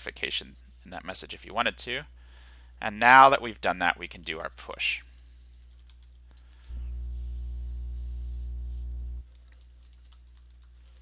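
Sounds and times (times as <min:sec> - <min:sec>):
buzzing electrical hum: 0:05.0 - 0:11.0
faint keyboard clicks: 0:09.2 - 0:11.0.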